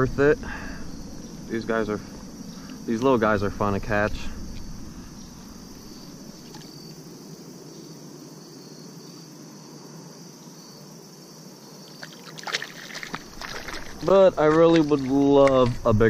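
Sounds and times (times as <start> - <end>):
crickets chirping: 0.0 - 16.0
fish splashing into water: 12.0 - 15.7.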